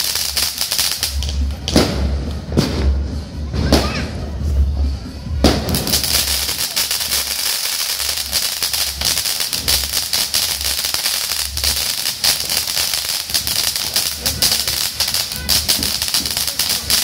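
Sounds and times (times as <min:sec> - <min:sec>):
firework fountain hissing: 0:00.0 - 0:02.8, 0:05.5 - 0:17.0
dense crackling pops: 0:05.9 - 0:17.0.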